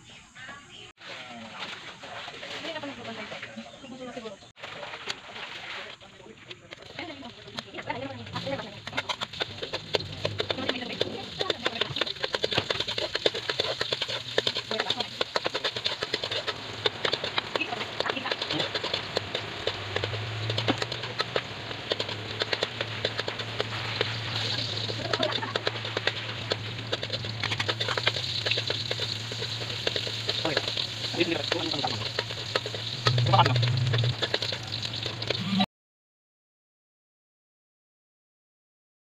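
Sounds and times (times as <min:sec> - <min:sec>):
onion sizzling in hot oil: 0:08.2 - 0:35.6
steady low hum: 0:16.2 - 0:34.7.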